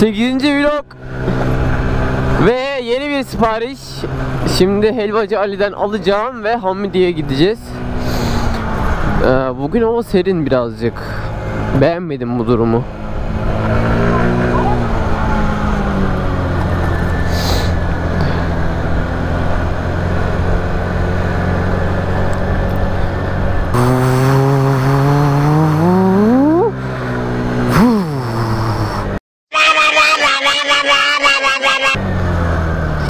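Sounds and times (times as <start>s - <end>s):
road and wind noise: 0.0s - 33.0s
scooter engine: 12.8s - 33.0s.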